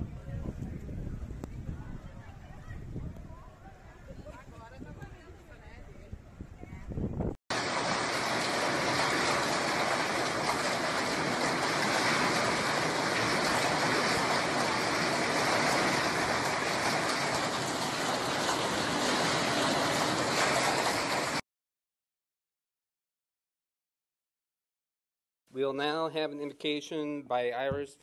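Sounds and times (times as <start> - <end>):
strong wind: 0.0 - 21.4
hail and rain roaring: 7.5 - 21.4.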